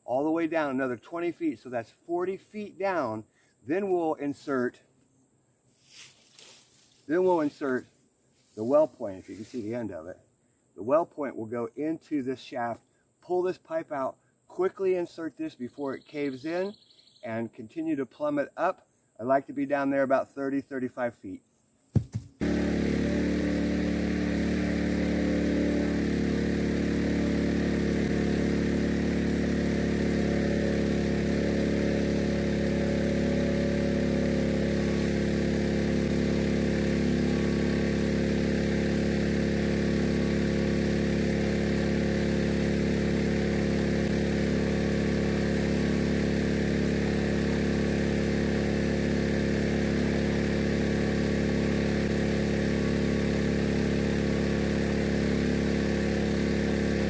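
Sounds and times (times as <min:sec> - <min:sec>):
small gasoline engine running: 0:22.0 - 0:57.0.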